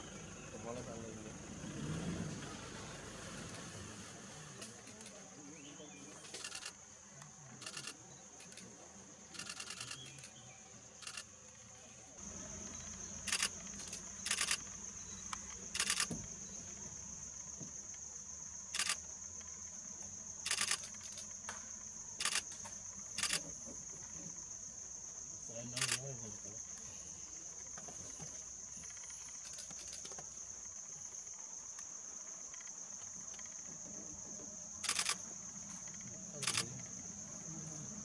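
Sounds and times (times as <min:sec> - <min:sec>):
rapid clicking bursts: 0:13.2 - 0:14.7, 0:15.4 - 0:16.1, 0:20.5 - 0:21.3, 0:34.8 - 0:35.2.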